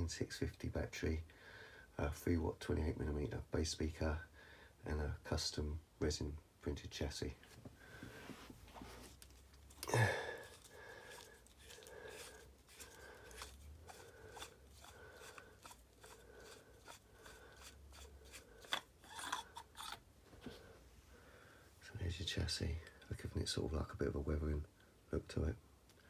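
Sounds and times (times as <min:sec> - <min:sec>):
metal threads rubbing and clicking: 0:09.1 - 0:20.0.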